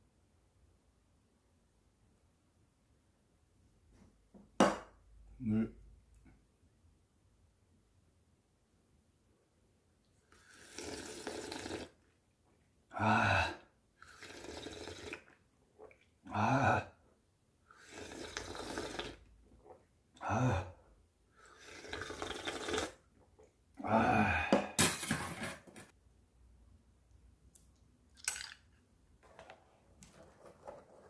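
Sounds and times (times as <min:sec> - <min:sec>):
slurping soup: 0:10.2 - 0:12.2, 0:14.0 - 0:16.2, 0:17.7 - 0:19.9, 0:21.3 - 0:23.6
person sighing ahh: 0:12.9 - 0:13.7, 0:16.3 - 0:17.0, 0:20.2 - 0:20.8, 0:23.8 - 0:24.8.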